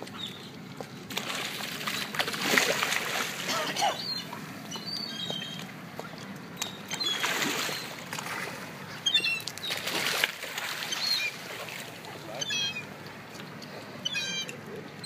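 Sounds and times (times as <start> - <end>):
fish splashing at water surface: 1.1 - 4.6, 5.3 - 13.3.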